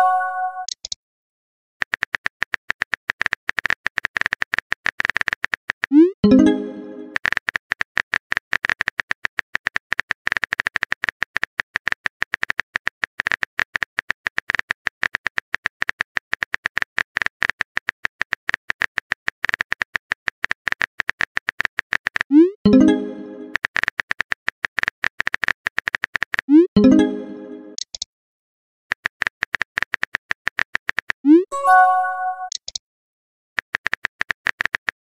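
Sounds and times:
phone keyboard typing clicks: 32.4 - 32.8, 33.6 - 35.0.

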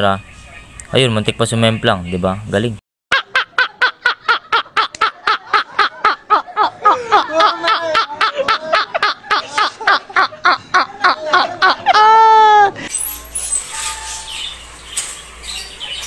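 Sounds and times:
men laughing: 3.1 - 12.8.

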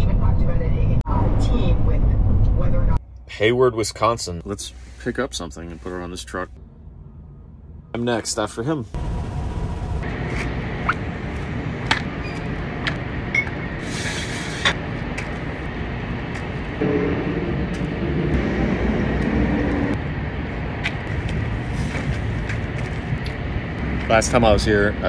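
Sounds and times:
engine rumbling: 0.0 - 25.0
wavering engine hum: 8.9 - 25.0.

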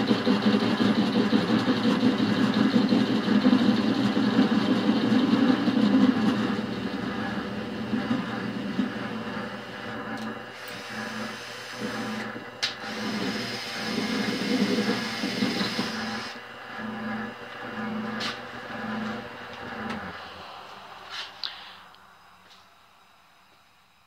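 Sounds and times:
lathe cutting metal: 0.0 - 21.1
cordless drill whine: 10.2 - 17.0.

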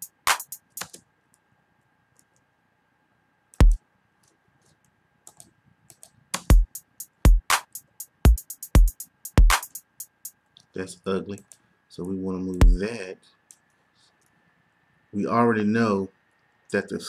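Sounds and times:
closed hi-hats: 0.0 - 1.0, 3.6 - 3.8, 6.4 - 10.4
electronic drum loop: 0.0 - 1.0, 3.6 - 3.8, 6.4 - 10.4, 12.5 - 12.9
deep kick drum: 7.3 - 7.5, 8.3 - 9.6.

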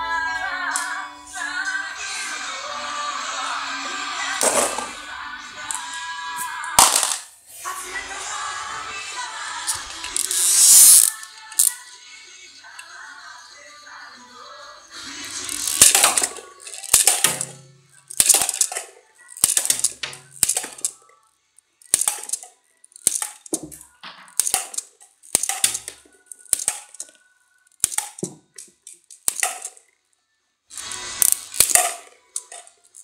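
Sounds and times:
marbles knocking plastic bottles: 6.7 - 7.4, 9.7 - 11.7, 15.2 - 21.0, 21.8 - 29.8, 30.8 - 33.0
marbles clattering across cardboard: 6.8 - 7.4, 9.7 - 11.7, 15.2 - 21.0, 21.8 - 29.8, 30.8 - 33.0
toy shooter plastic clicks: 9.7 - 11.8, 15.4 - 21.1, 21.8 - 29.8, 30.7 - 33.0.

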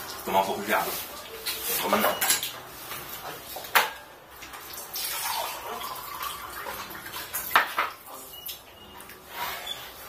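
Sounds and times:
tap water running into container: 3.5 - 9.3.

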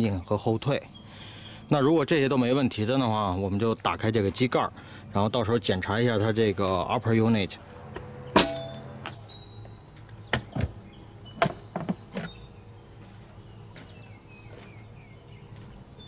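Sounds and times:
small birds chirping: 0.0 - 16.0
engine cowling clicks and knocks: 10.0 - 12.5.

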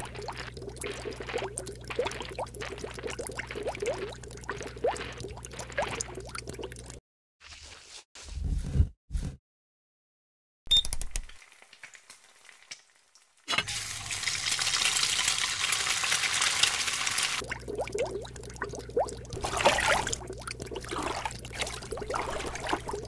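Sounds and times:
water bubbling: 0.0 - 7.0, 17.4 - 23.0.

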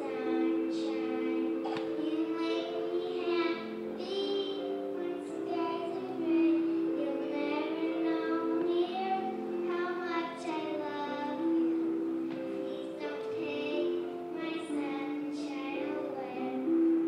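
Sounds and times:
girl singing into microphone: 0.0 - 17.0.

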